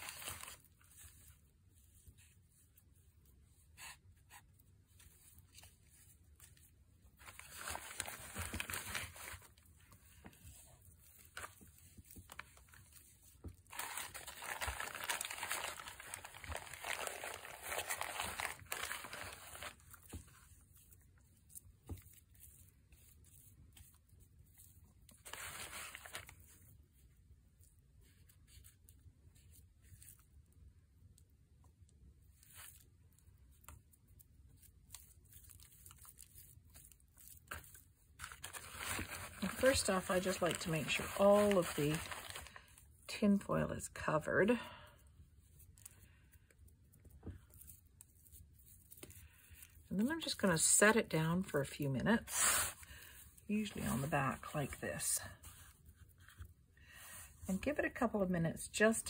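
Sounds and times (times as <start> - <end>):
plastic bag crinkling: 7.2 - 9.7, 11.0 - 20.5, 34.9 - 43.5, 47.2 - 56.4.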